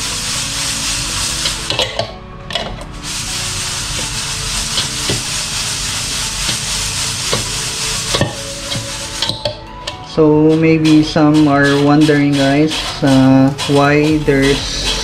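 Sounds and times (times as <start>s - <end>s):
coffee beans rustling on mesh: 3.0s - 9.5s.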